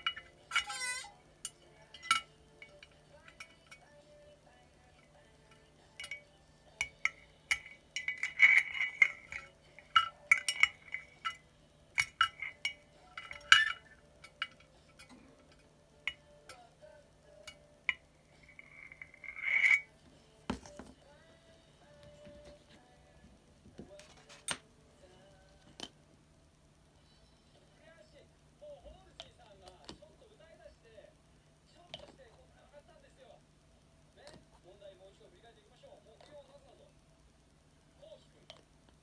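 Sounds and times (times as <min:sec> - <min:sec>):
plastic parts clinking in glass bottle: 0:05.9 - 0:11.4, 0:12.0 - 0:16.2
scraping rattle: 0:06.8 - 0:11.4, 0:18.4 - 0:19.9.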